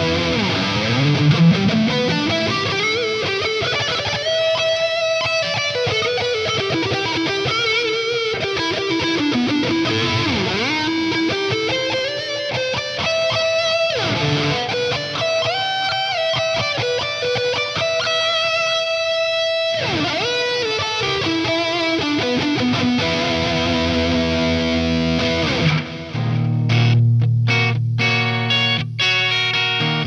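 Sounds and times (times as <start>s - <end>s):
electric guitar lead with bends: 0.0s - 30.0s.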